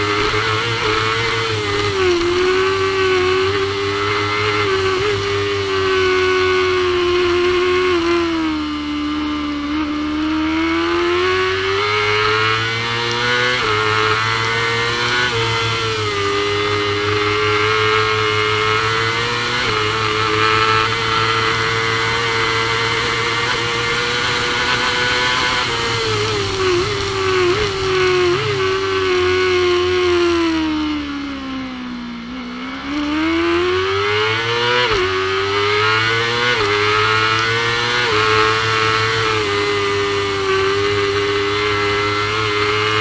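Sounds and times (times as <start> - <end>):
motorcycle engine accelerating: 0.0 - 43.0.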